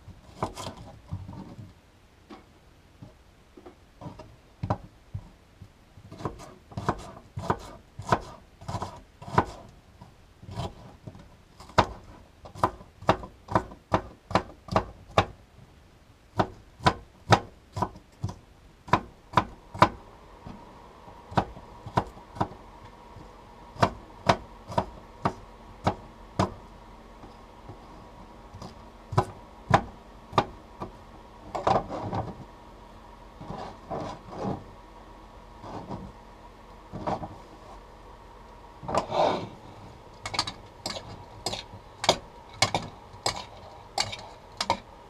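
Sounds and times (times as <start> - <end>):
knife scraping board: 0.2 - 1.6, 6.1 - 9.7, 10.5 - 11.0, 31.5 - 32.4, 33.4 - 34.6, 35.6 - 36.1, 38.9 - 39.6, 40.3 - 44.8
knife chopping on cutting board: 6.1 - 9.7.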